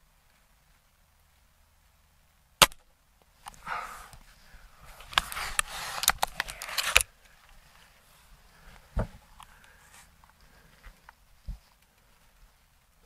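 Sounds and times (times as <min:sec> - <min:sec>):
rifle cocking rasp and clicks: 0:05.2 - 0:07.1.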